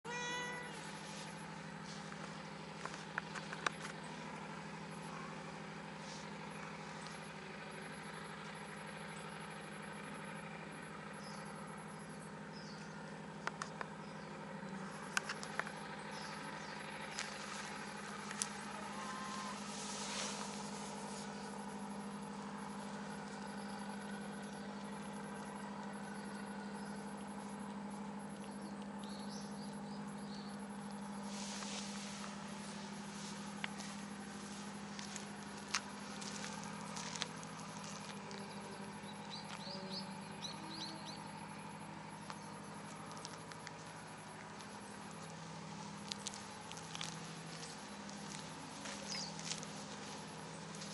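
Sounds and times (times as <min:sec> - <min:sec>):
low mechanical hum: 0:00.0 - 0:50.9.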